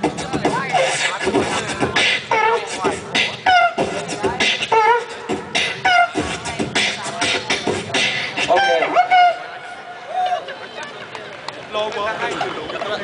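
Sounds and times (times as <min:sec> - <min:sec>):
beatboxing into a microphone: 0:00.0 - 0:09.4
vocal glide: 0:00.0 - 0:09.8.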